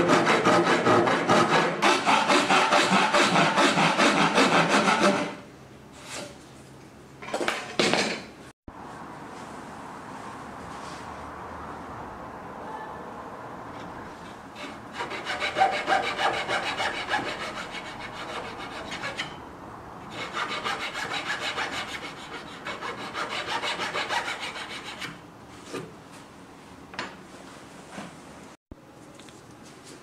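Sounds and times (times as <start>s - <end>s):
steel file rasping in wood: 0.0s - 5.4s, 14.6s - 19.4s, 20.1s - 25.2s.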